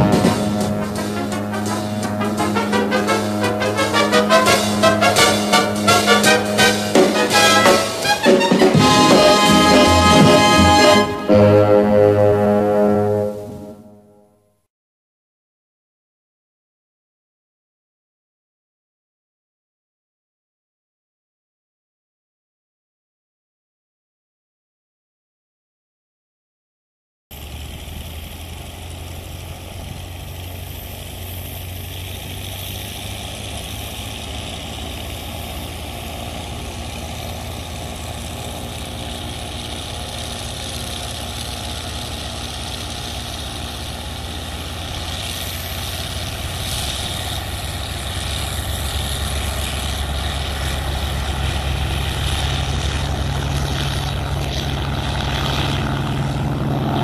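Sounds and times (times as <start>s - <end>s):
propeller engine drone: 0.0s - 14.2s, 27.3s - 57.0s.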